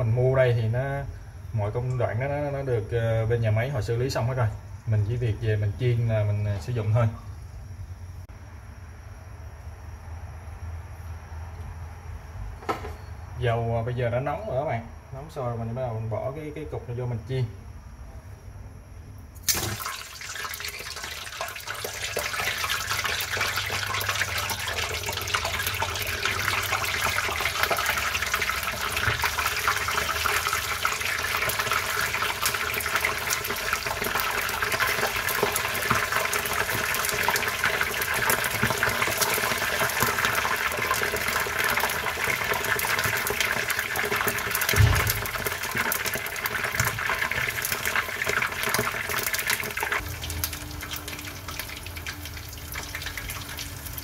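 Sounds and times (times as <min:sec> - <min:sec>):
meat hitting hot oil: 0:19.4 - 0:54.0
oil sizzling and crackling: 0:19.4 - 0:54.0
low thump: 0:44.7 - 0:45.4.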